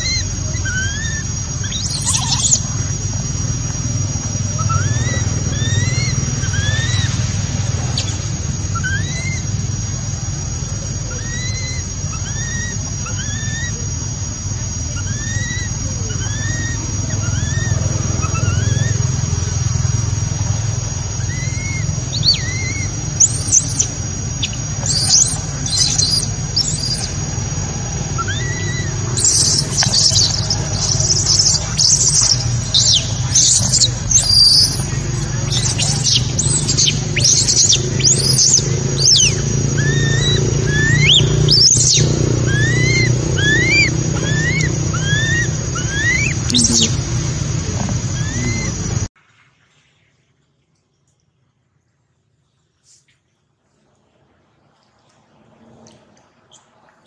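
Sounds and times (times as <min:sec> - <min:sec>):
high-pitched animal chirps: 0:00.0 - 0:02.8, 0:11.2 - 0:13.8, 0:21.2 - 0:27.2, 0:28.2 - 0:47.2, 0:47.8 - 0:48.8
steady low hum: 0:00.0 - 0:49.2.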